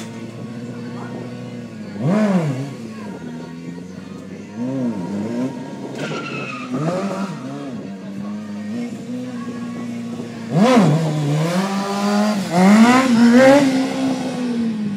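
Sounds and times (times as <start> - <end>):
motorcycle engine idling and revving: 0.0 - 14.9
tyre squealing: 5.2 - 7.7.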